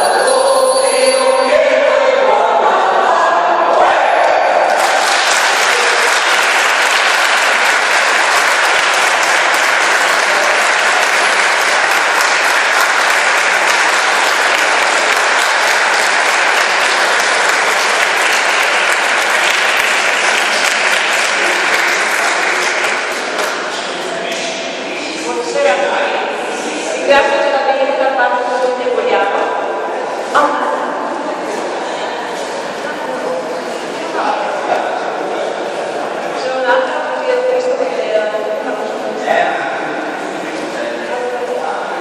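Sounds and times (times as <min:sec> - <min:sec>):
audience applauding: 0:04.6 - 0:23.9.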